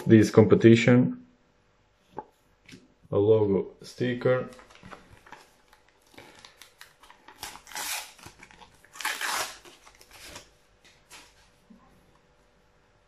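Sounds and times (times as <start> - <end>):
wrapper crinkling: 4.4 - 11.4
wrapper tearing open: 4.5 - 10.5.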